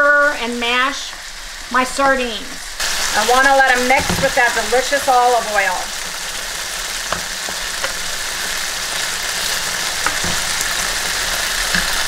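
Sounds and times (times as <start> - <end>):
sauce sizzling in a skillet: 0.1 - 12.0.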